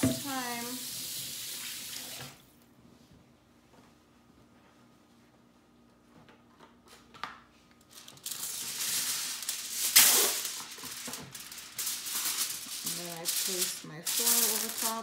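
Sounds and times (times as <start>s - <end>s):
aluminium foil crinkling: 7.8s - 15.0s
foil tearing: 7.9s - 15.0s.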